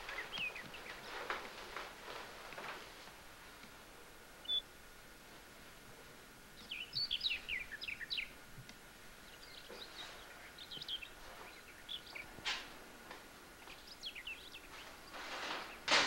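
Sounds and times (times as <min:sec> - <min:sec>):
small birds chirping: 0:00.0 - 0:02.3, 0:04.4 - 0:04.8, 0:06.5 - 0:16.0.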